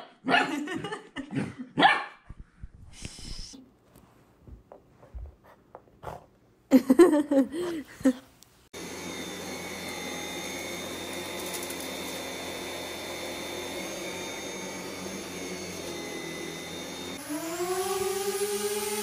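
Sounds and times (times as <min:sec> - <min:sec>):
stick vacuum cleaner running: 0:08.7 - 0:19.0.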